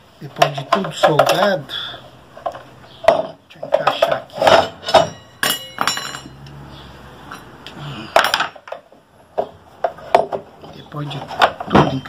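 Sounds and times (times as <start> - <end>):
metal rings clinking and knocking: 0.4 - 1.7, 2.4 - 6.6, 7.2 - 10.4.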